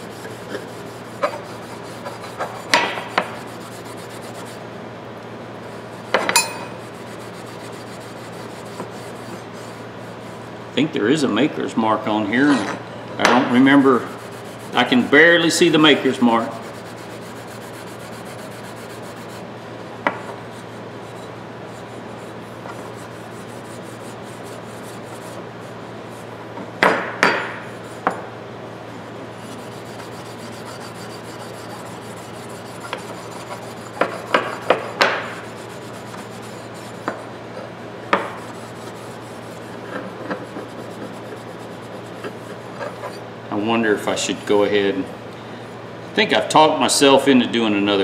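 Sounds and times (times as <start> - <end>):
steel wool scrubbing metal: 0.0 - 4.6, 6.0 - 10.4, 13.5 - 19.5, 20.4 - 26.3, 29.3 - 37.3, 38.2 - 43.2.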